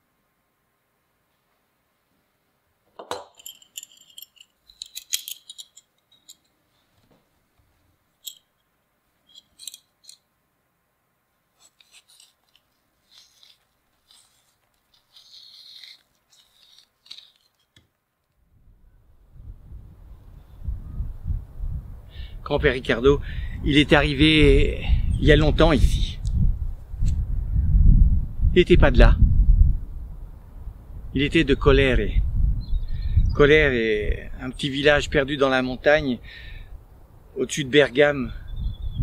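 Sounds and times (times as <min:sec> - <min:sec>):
knife scraping apple skin: 0:11.6 - 0:17.8.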